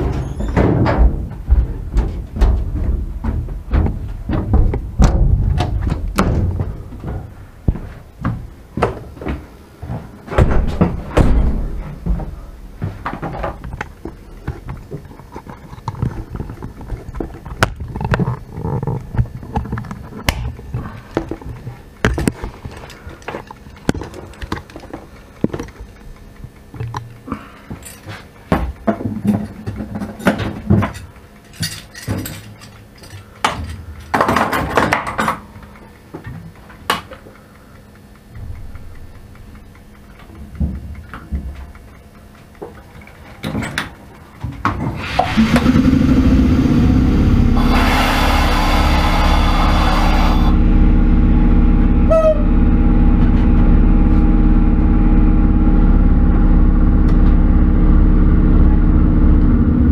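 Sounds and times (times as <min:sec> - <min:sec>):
low rumble: 0:45.3 - 0:59.9.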